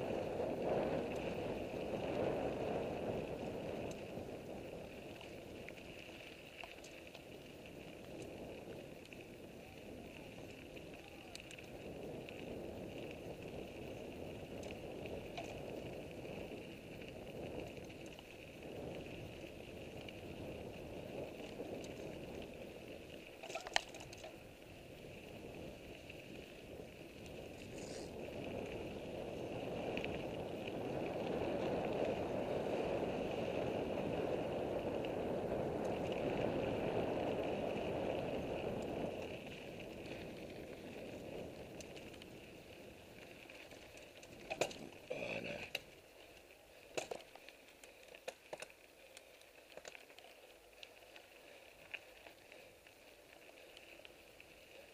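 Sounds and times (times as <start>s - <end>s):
bike tyres rumbling on gravel: 0.0s - 54.9s
bike frame rattle: 23.3s - 24.4s.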